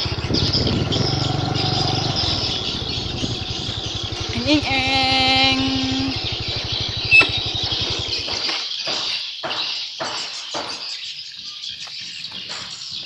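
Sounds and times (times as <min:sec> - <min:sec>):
small engine puttering: 0:00.0 - 0:09.0
insects hissing: 0:00.1 - 0:08.3.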